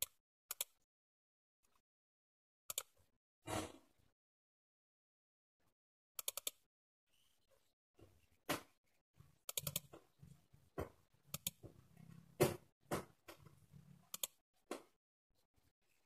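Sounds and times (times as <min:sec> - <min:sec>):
computer mouse clicking: 0:00.0 - 0:00.8, 0:02.7 - 0:03.0, 0:06.2 - 0:06.6, 0:09.5 - 0:09.9, 0:11.3 - 0:11.6, 0:14.1 - 0:14.4.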